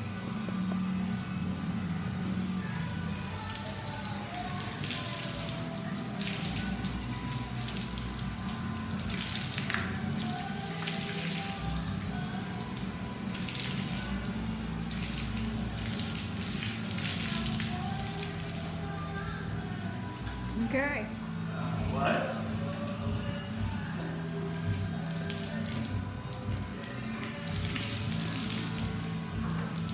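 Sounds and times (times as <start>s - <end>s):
background music: 0.0s - 29.9s
water running onto floor: 3.2s - 19.3s, 24.7s - 29.9s.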